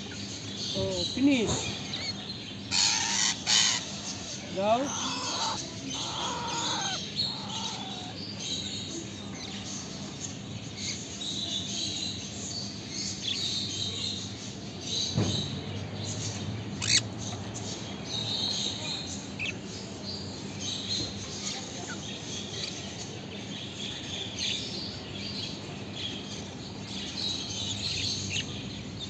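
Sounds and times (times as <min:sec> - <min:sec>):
parrot chicks squawking: 0:01.0 - 0:08.3, 0:16.8 - 0:17.1.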